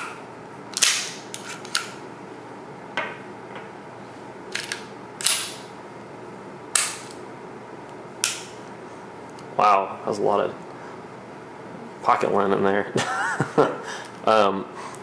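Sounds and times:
pistol slide clacking: 0:04.6 - 0:05.6.

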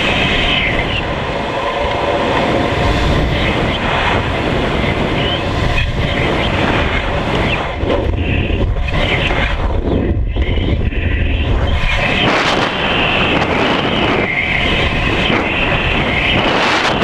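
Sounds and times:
wind buffeting camera: 0:00.0 - 0:17.0.

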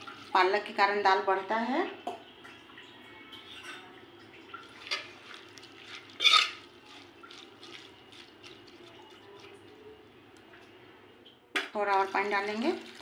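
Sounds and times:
metal spoon stirring wet food: 0:04.6 - 0:10.5
spoon scraping and clinking on pot: 0:06.1 - 0:06.7.

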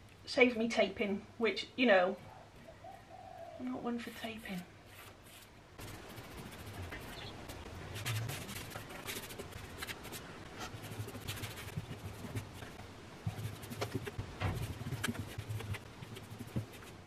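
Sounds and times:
paintbrush strokes on wood: 0:04.0 - 0:17.0.

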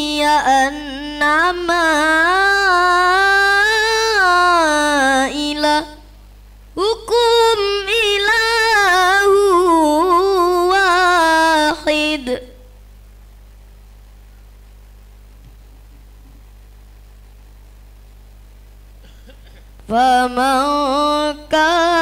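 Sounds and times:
boy reciting melodically: 0:00.0 - 0:06.2, 0:06.8 - 0:12.8, 0:19.8 - 0:22.0.

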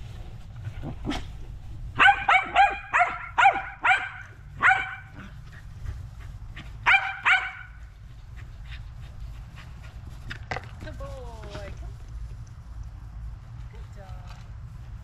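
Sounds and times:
dog barking: 0:02.0 - 0:05.3, 0:06.8 - 0:07.8.

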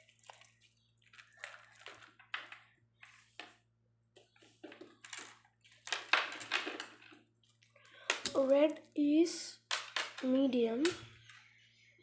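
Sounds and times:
rubber resistance bands rustling: 0:00.0 - 0:09.1.

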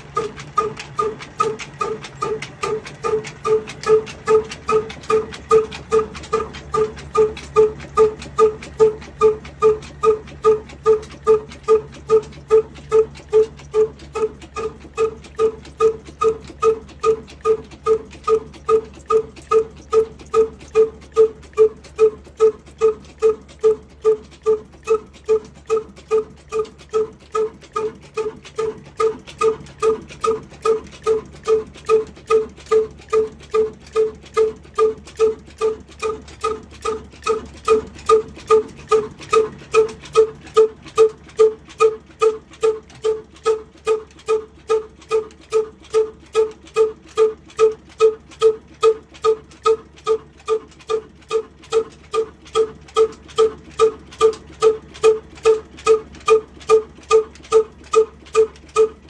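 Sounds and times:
diesel engine exhaust pulses: 0:00.0 - 0:59.0.

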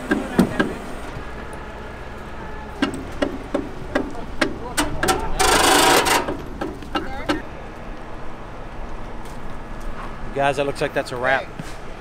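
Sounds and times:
sharp metal knocks and clanks: 0:02.8 - 0:07.4.

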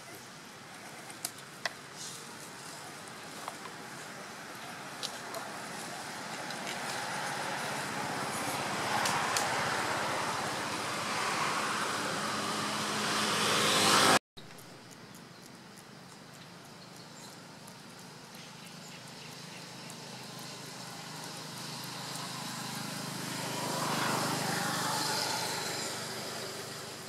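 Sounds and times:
passing road vehicle: 0:02.0 - 0:14.2, 0:18.4 - 0:27.0.

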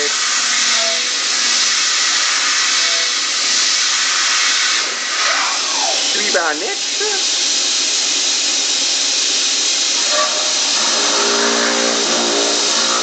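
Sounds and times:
mill cutting steel hiss: 0:00.0 - 0:13.0
falling whine: 0:09.9 - 0:13.0.

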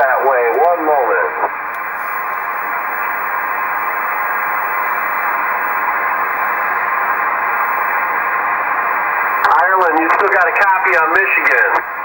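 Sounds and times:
radio static hiss: 0:00.0 - 0:12.0.

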